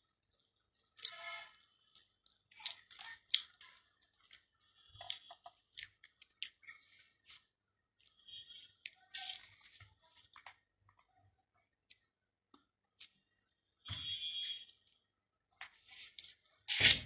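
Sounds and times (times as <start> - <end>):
person chewing with wet mouth clicks: 5.0 - 8.2.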